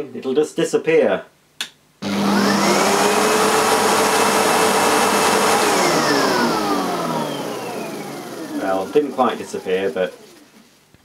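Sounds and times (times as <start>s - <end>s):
vacuum cleaner motor whining: 2.0s - 10.7s
brush roll spinning: 2.2s - 10.8s.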